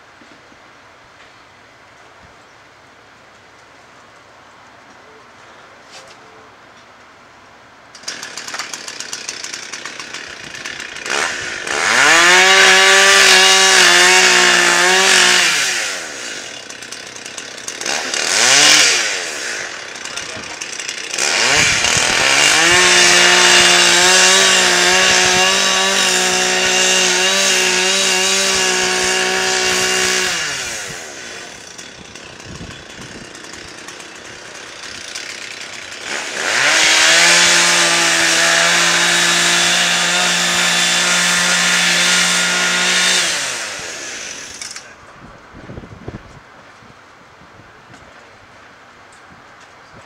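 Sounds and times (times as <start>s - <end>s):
two-stroke saw revving: 8.0s - 45.0s.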